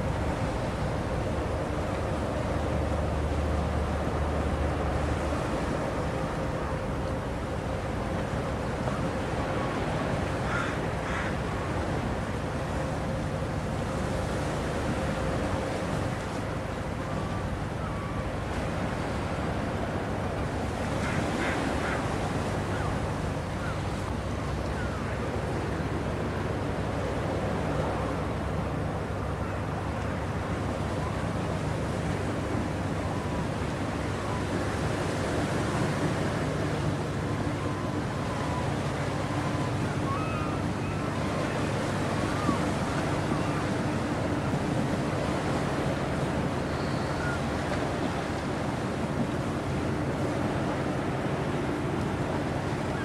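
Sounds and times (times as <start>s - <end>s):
boat engine hum: 0.0s - 53.0s
water noise: 0.0s - 53.0s
wind: 0.0s - 53.0s
faint wavering bird calls: 16.8s - 18.4s, 20.8s - 25.7s, 32.9s - 48.8s
bird calls: 37.3s - 45.6s, 46.2s - 48.2s.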